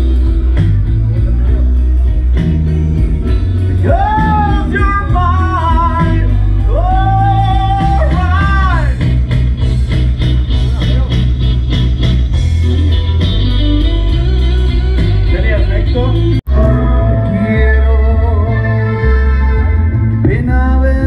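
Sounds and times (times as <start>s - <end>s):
live rock blues band: 0.0s - 21.0s
person singing long notes: 16.4s - 21.0s.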